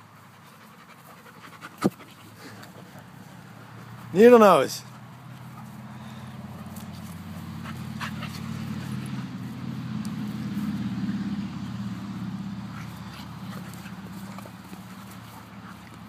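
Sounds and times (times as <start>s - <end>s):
dogs play-growling: 4.9s - 10.8s, 12.4s - 16.0s.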